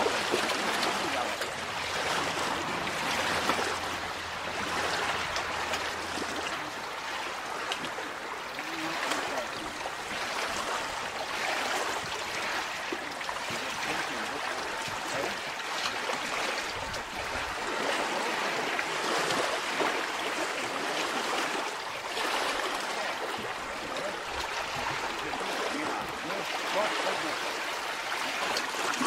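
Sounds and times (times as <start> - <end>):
choppy water lapping and splashing: 0.0 - 29.0.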